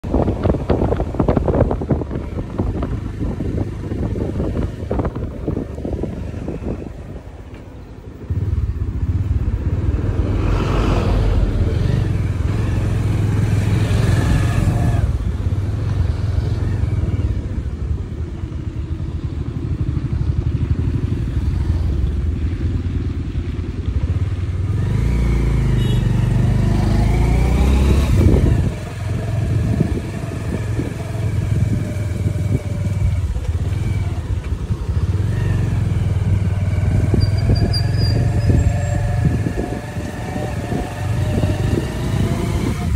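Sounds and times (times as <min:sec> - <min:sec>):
motorcycle engine running: 0:11.4 - 0:42.9.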